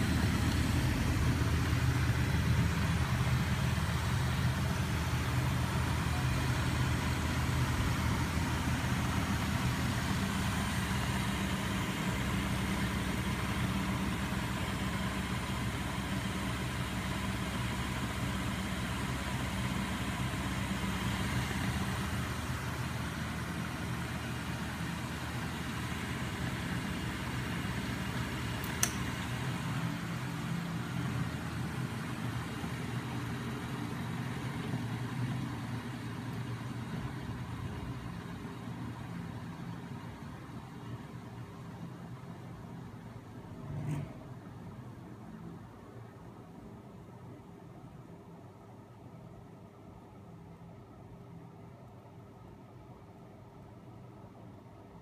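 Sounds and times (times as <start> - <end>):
machine mechanical hum: 0.0 - 55.0
sharp click: 28.6 - 29.1.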